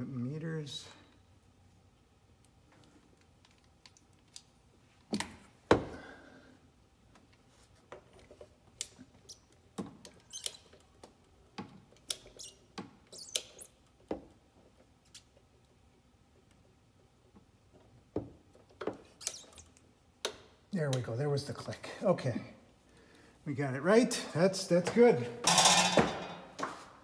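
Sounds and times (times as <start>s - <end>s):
torque wrench clicks and squeaks: 8.8s - 11.0s, 11.9s - 13.9s, 19.2s - 20.4s.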